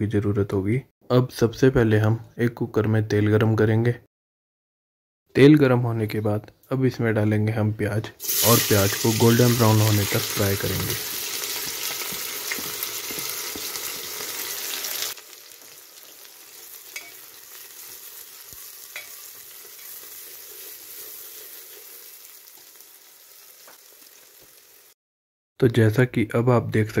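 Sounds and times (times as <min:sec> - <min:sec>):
onions sizzling in oil: 0:08.2 - 0:25.0
metal spoon clicks: 0:17.0 - 0:17.2.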